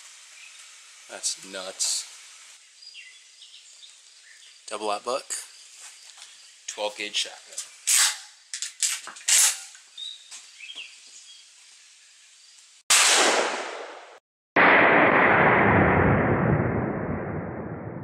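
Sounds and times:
shotgun blasts: 0:12.9 - 0:16.2.

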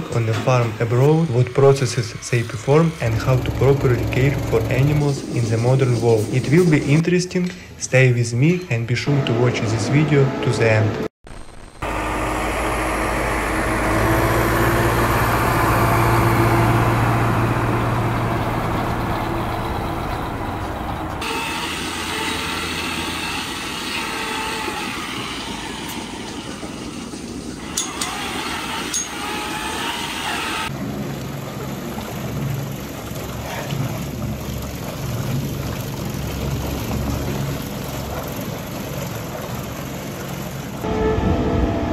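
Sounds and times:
milking machinery running: 0:00.0 - 0:06.3, 0:11.8 - 0:30.7.

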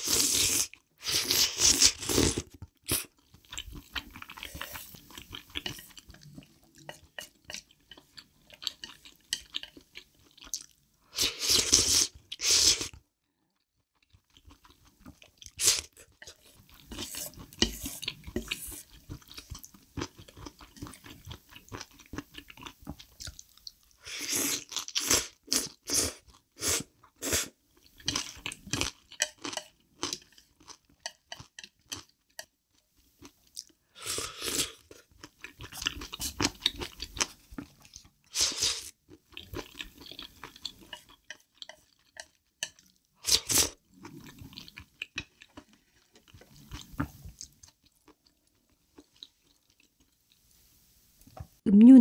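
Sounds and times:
slurping noodles: 0:00.0 - 0:03.1, 0:38.3 - 0:39.0, 0:43.2 - 0:44.5.

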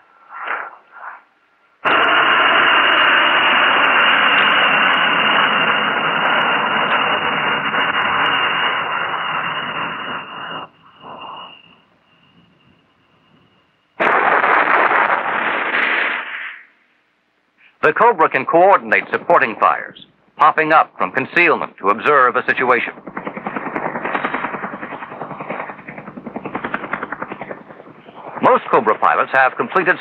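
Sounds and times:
radio static hiss with tone: 0:00.0 - 0:30.0
broken radio sounds: 0:00.3 - 0:02.6, 0:21.8 - 0:30.0.

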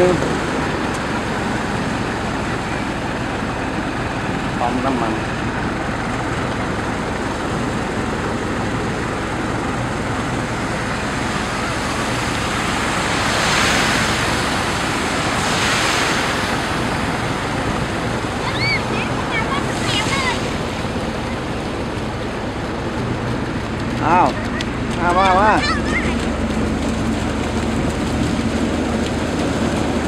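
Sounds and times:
passing cars spraying water: 0:00.0 - 0:30.0
vehicle driving through floodwater: 0:00.0 - 0:30.0.

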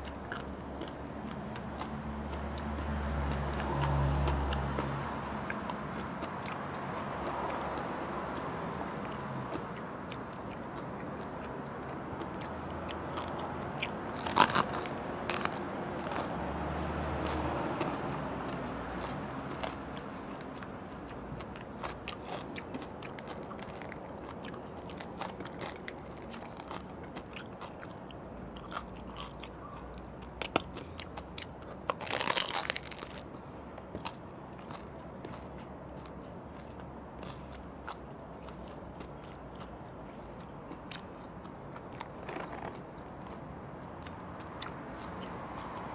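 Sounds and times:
crunching fried pork skin: 0:09.2 - 0:28.0, 0:28.6 - 0:33.3.

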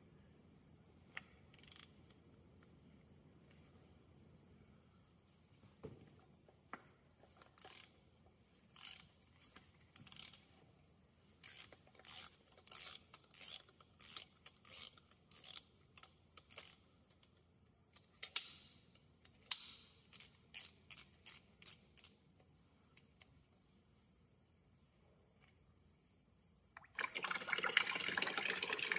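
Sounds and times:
socket ratchet clicking: 0:01.5 - 0:02.2, 0:11.4 - 0:22.2
sharp metal clicks: 0:17.9 - 0:22.2.

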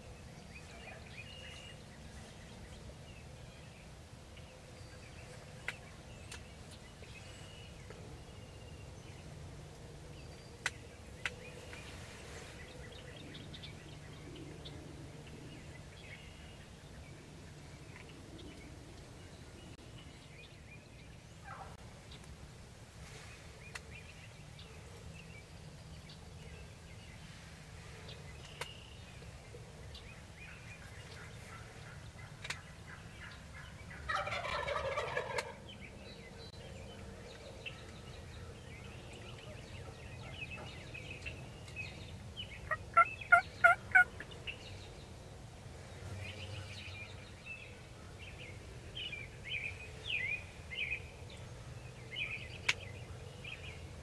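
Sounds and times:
turkey gobbling: 0:33.6 - 0:35.6, 0:42.7 - 0:44.1
turkey yelps: 0:34.1 - 0:35.6, 0:42.7 - 0:44.1
short high turkey calls: 0:42.6 - 0:44.1.

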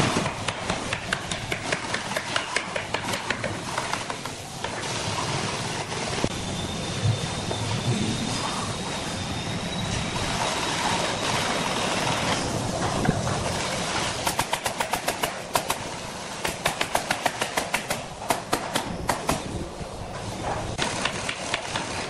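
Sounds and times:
workshop noise: 0:00.0 - 0:22.0.

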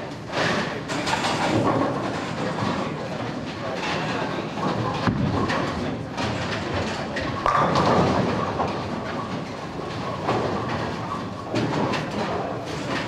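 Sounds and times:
rumble of bowling alley machinery: 0:00.0 - 0:13.0
bowling pins crashing and clattering: 0:00.4 - 0:13.0
bowling ball rolling on wooden lane: 0:04.6 - 0:12.8.

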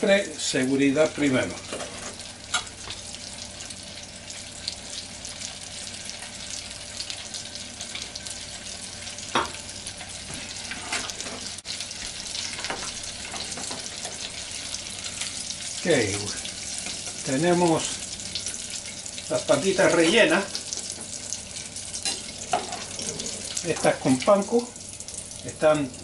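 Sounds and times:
hot oil sizzling: 0:00.0 - 0:26.0
oil crackling and popping: 0:01.9 - 0:03.7.

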